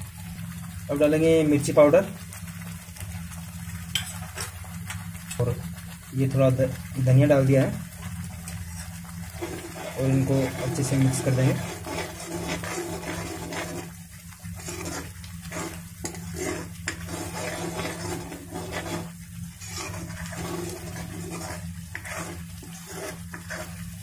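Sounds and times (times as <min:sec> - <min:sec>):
paste and oil sizzling: 0:00.0 - 0:24.0
metal spatula scraping pan: 0:08.4 - 0:24.0.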